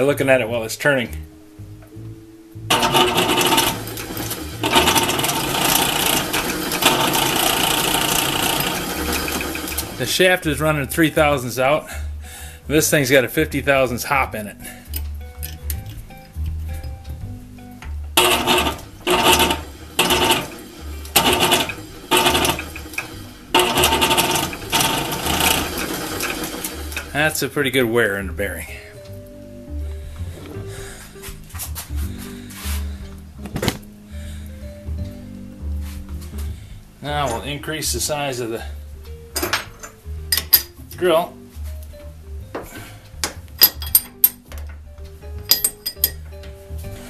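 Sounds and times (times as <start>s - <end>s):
lathe whirring: 2.7s - 10.2s, 18.2s - 27.4s.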